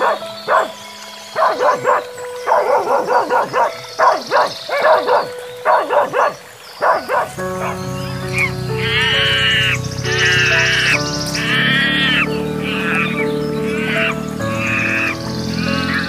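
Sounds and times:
dogs barking excitedly: 0.0 - 0.8, 1.4 - 7.8.

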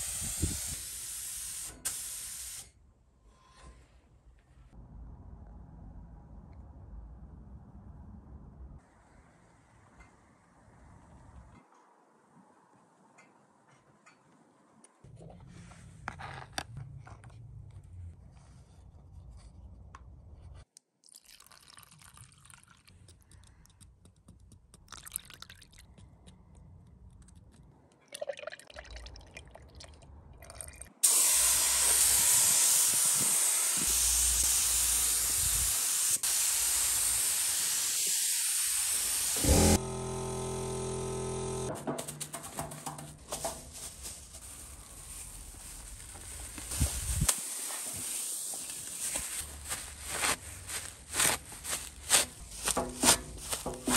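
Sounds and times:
paint spray gun hissing: 0.0 - 2.7, 31.0 - 43.6, 46.6 - 49.3.

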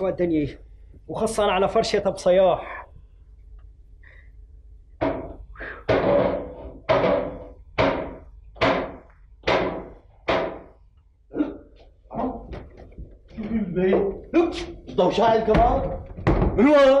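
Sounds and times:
loud ringing knocks: 5.0 - 10.8.

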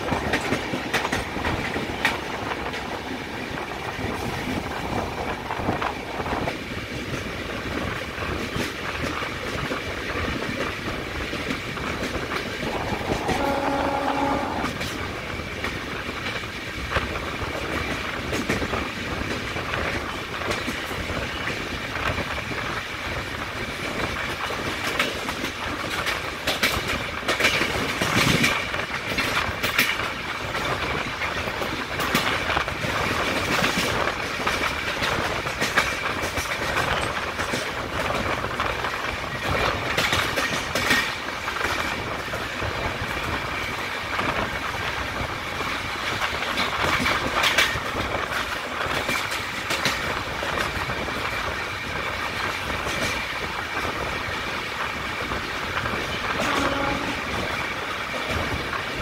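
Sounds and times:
train running and wind noise: 0.0 - 59.0
train horn: 12.6 - 14.9, 56.4 - 57.5
wheels clattering over rail joints: 23.6 - 59.0.

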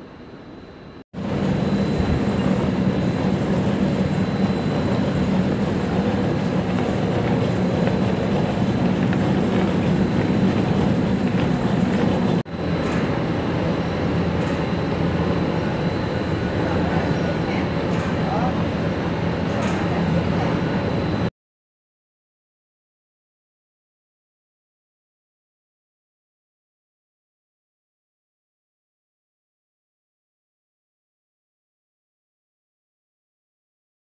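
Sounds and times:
factory machinery running: 0.0 - 21.3.

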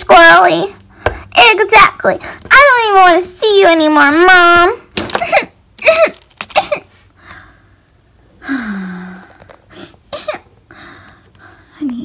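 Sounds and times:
person sighing: 8.4 - 10.0.

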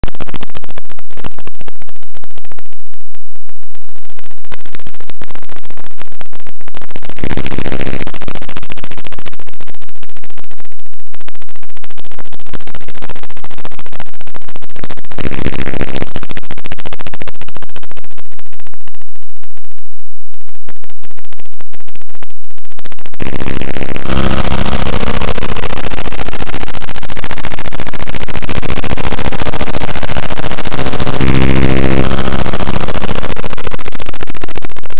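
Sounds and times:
harsh electronic crackle: 0.0 - 34.9
low electronic buzzing: 0.0 - 34.9.

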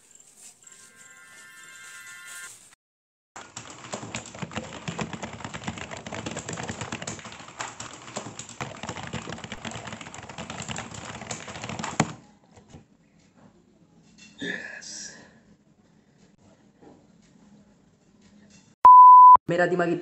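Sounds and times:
fast typing on keyboard: 3.4 - 12.2.

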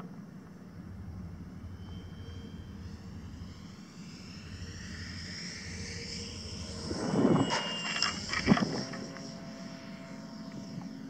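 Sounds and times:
model plane motor whining: 4.5 - 11.0.

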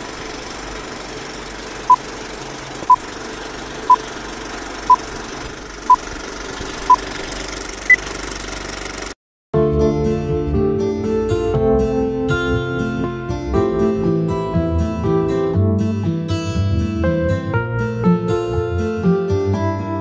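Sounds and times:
film projector rattle: 0.0 - 9.2.

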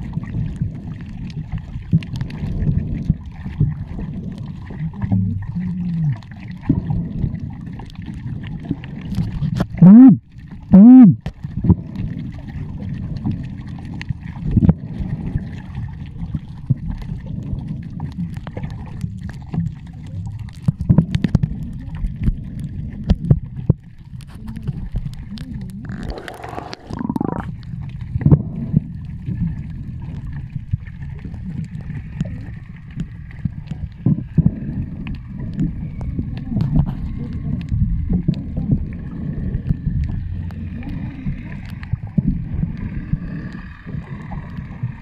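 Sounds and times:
low underwater rumble: 0.0 - 45.0
underwater clicks and knocks: 0.0 - 45.0.

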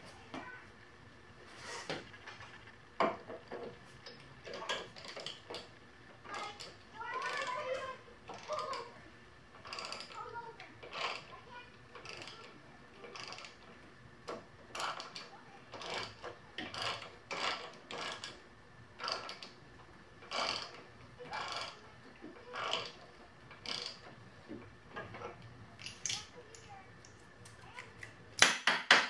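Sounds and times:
thread tool metallic rasp and click: 14.3 - 18.4.

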